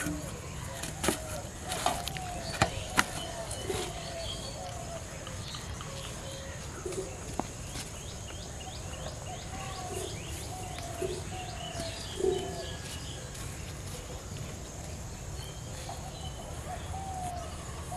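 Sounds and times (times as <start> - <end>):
doves cooing: 0.0 - 7.7, 8.9 - 14.3
bird chirping: 0.0 - 14.2.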